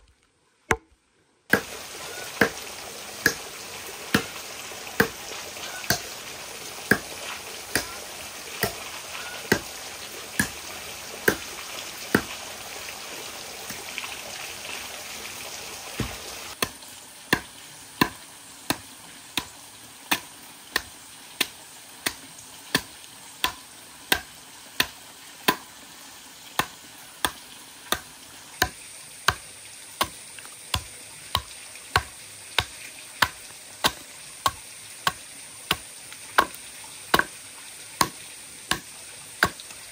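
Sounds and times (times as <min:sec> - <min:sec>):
axe chopping log: 0:00.7 - 0:01.8, 0:02.4 - 0:02.6, 0:03.2 - 0:03.4, 0:04.1 - 0:04.4, 0:05.0 - 0:06.2, 0:06.9 - 0:09.7, 0:10.4 - 0:10.6, 0:11.2 - 0:11.5, 0:12.1 - 0:12.4, 0:16.0 - 0:25.7, 0:26.6 - 0:37.4, 0:38.0 - 0:39.8
running water hissing: 0:01.5 - 0:39.9.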